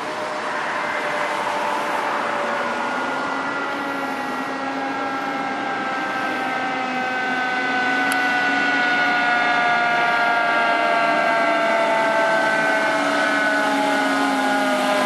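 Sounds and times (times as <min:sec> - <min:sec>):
mechanical fire engine siren winding down: 0:00.0 - 0:15.0.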